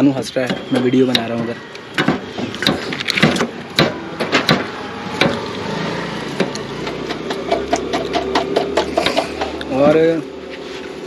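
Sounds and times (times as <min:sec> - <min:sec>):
sharp knocks and clicks: 0:00.4 - 0:05.4, 0:06.4 - 0:09.7.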